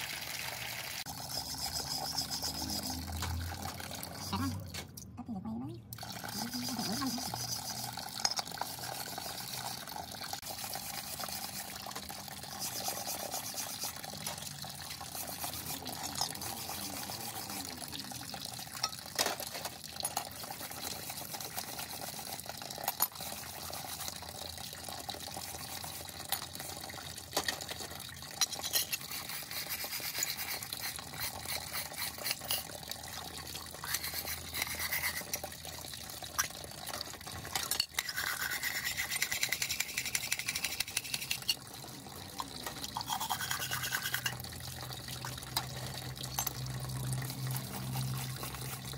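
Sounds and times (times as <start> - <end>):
wire brush scrubbing metal: 1.1 - 4.6, 6.1 - 18.2, 23.1 - 24.3, 25.2 - 26.8, 28.4 - 32.8, 33.7 - 35.5, 38.0 - 41.6, 42.9 - 44.4, 47.2 - 48.9
water sloshing in a tray: 41.6 - 48.9.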